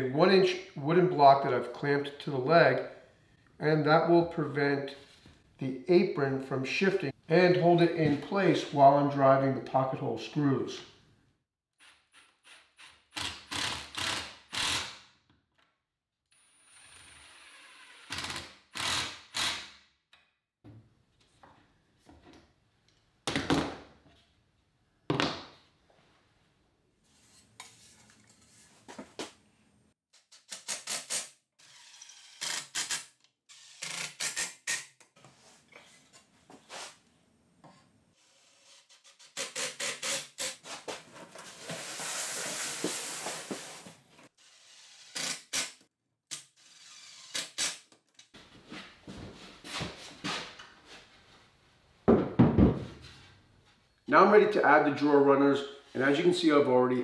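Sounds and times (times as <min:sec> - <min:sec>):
cordless drill driving screws: 0:16.5 - 0:19.6, 0:31.6 - 0:34.9, 0:44.4 - 0:45.7, 0:46.3 - 0:47.8.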